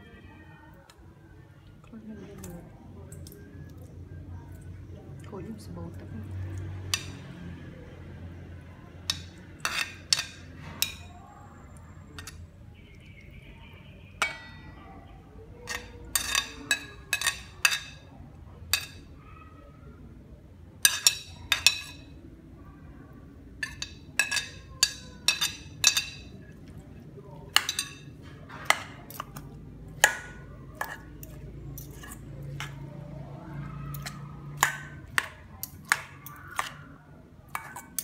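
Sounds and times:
utensils clinking on dishes: 6.4 - 7.4, 9.0 - 13.0, 14.1 - 19.2, 20.8 - 22.3, 23.6 - 38.0.

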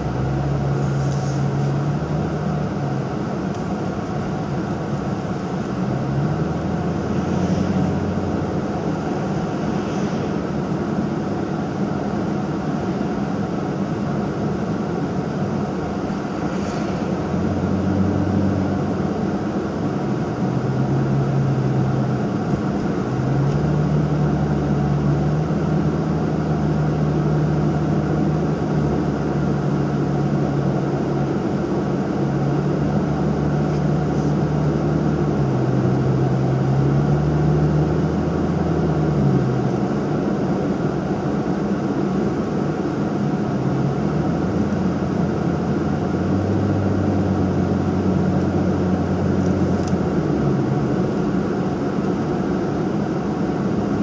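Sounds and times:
tyre and road noise: 0.0 - 12.1, 15.3 - 31.3
car engine drone: 0.0 - 54.0.

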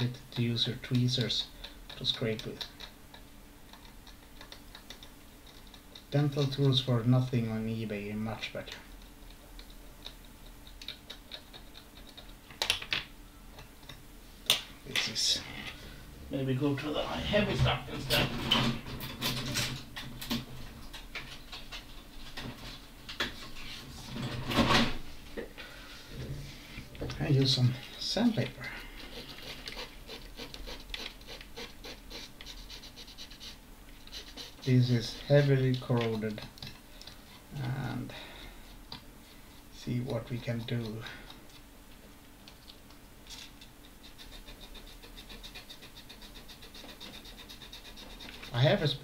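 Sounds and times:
sandpaper scratching: 29.0 - 35.5, 44.0 - 49.0.

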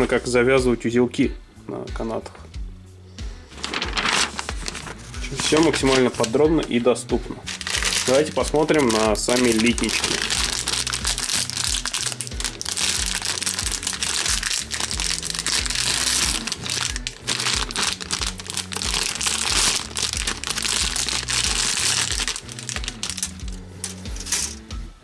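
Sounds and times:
background music with bass line: 0.0 - 25.0
plastic bags crinkling: 3.6 - 6.4, 7.5 - 24.6.

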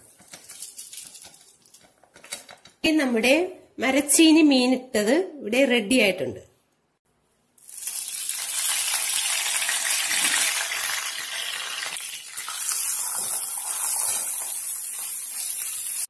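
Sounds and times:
spices sizzling in hot oil: 7.6 - 16.0.

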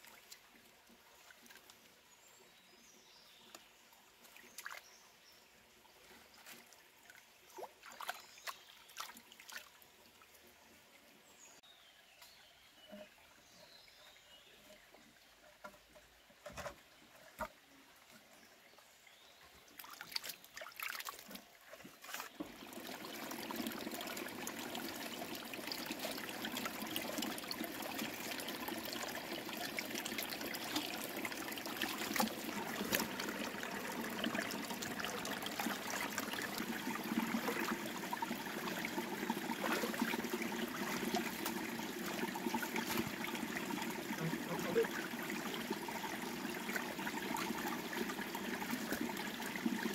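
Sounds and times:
water trickling: 13.0 - 49.9.

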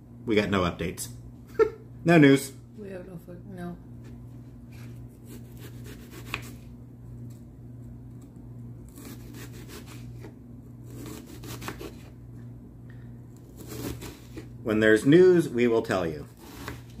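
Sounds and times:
steady low hum: 0.0 - 17.0
knife sawing through onion: 5.2 - 6.6, 8.9 - 12.2, 13.4 - 14.5.

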